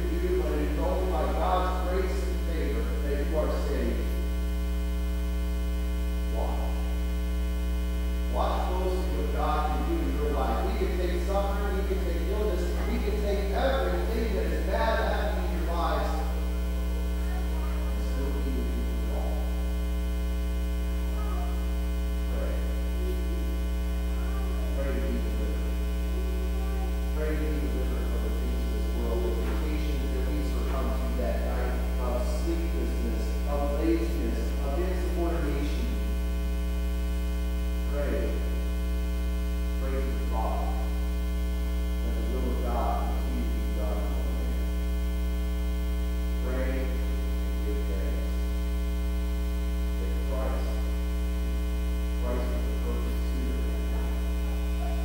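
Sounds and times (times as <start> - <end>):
faint man's voice: 0.0 - 4.2, 6.3 - 7.0, 8.3 - 16.4, 17.2 - 19.7, 22.3 - 23.5, 24.2 - 36.1, 37.9 - 38.5, 39.8 - 41.1, 42.0 - 44.7, 46.4 - 48.4, 50.0 - 51.0, 52.2 - 55.0
electrical mains hum: 0.0 - 55.0.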